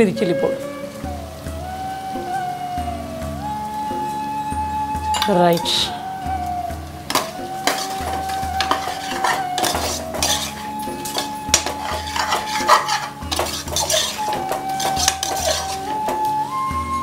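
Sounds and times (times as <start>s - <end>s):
ladle scraping metal pot: 7.0s - 16.4s.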